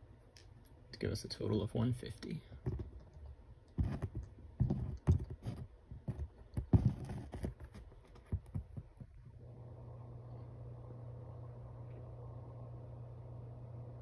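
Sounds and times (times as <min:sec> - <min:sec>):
steady low hum: 0:00.0 - 0:14.0
handling clicks and knocks: 0:02.6 - 0:09.2.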